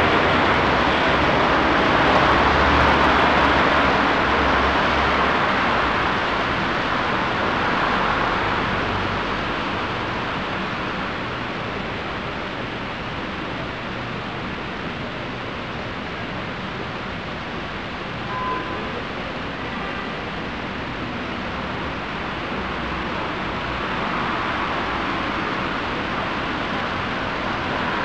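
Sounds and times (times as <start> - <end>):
street traffic hiss: 0.0 - 28.0
brief high tone: 18.2 - 19.0.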